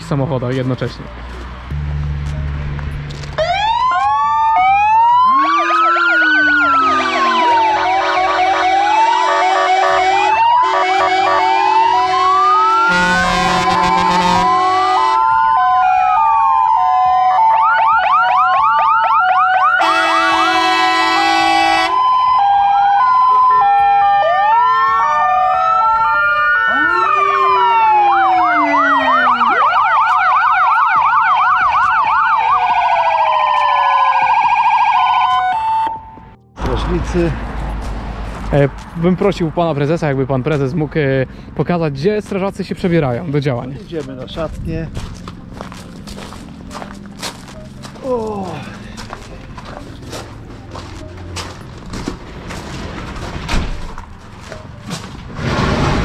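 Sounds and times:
fire engine sirens wailing: 0:01.7 - 0:37.5, 0:45.2 - 0:53.3.

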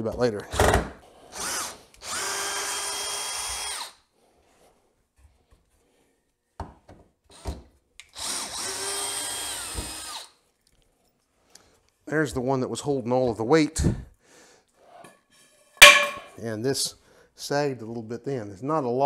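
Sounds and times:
power drill whining: 0:01.3 - 0:04.0, 0:08.2 - 0:10.3.

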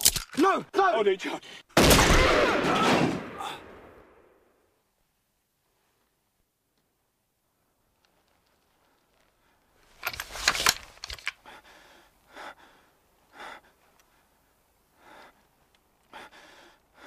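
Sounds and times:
man gasping and breathing hard: 0:11.4 - 0:14.3, 0:15.0 - 0:17.0.

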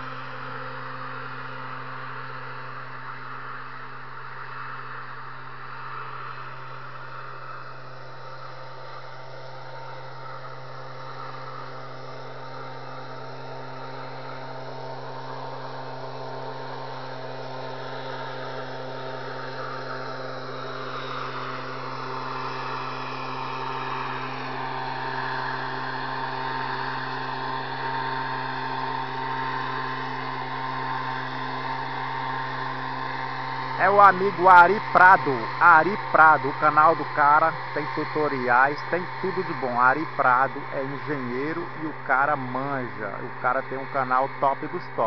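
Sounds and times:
mist blower engine running: 0:00.0 - 0:45.0.

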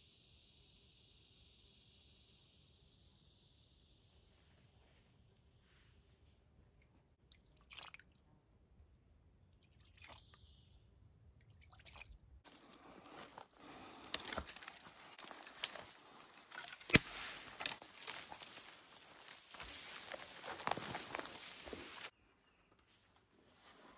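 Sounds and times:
branches brushing: 0:12.5 - 0:22.1
footsteps crunching through leaves: 0:12.5 - 0:22.1
twigs cracking: 0:12.5 - 0:22.1.

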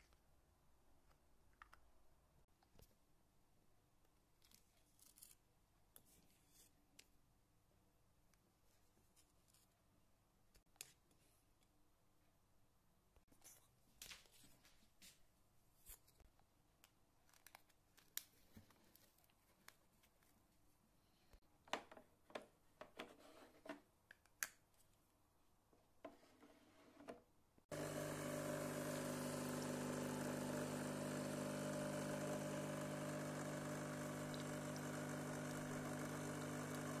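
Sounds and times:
coffee machine pump humming: 0:27.7 - 0:37.0.

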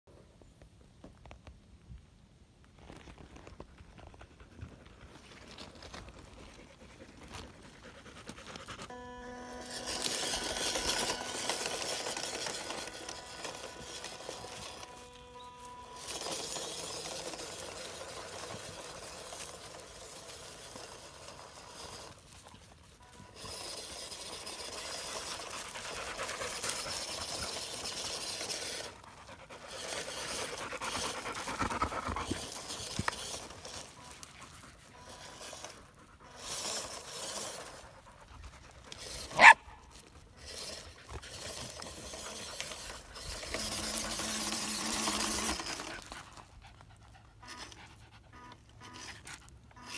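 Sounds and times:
dog panting hard: 0:06.4 - 0:08.9, 0:28.8 - 0:33.1, 0:45.9 - 0:49.5
dog barking: 0:39.4 - 0:39.7.

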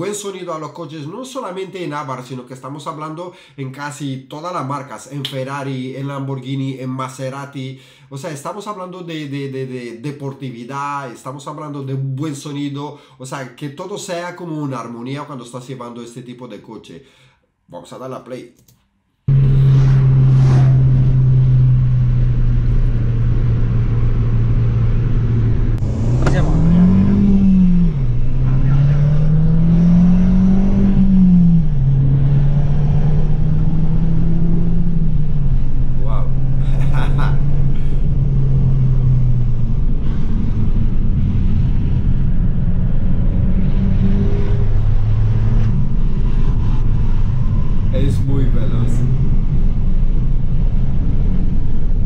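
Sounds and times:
car engine running: 0:19.3 - 0:52.0.

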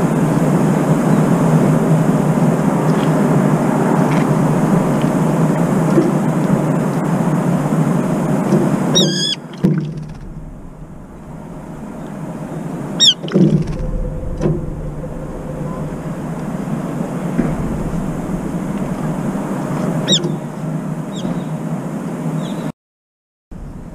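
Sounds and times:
distant traffic rumble: 0:00.0 - 0:22.7
wing flutter or splash: 0:00.4 - 0:21.4
bird shrill squeal: 0:08.9 - 0:09.4, 0:11.3 - 0:20.5.

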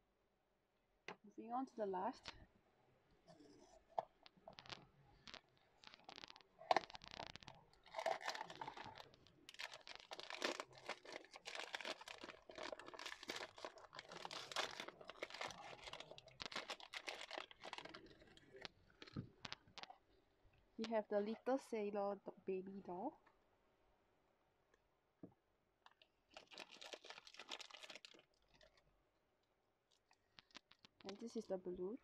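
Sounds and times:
foil packet crinkling and tearing: 0:04.5 - 0:19.9, 0:26.3 - 0:28.8, 0:30.4 - 0:31.2.

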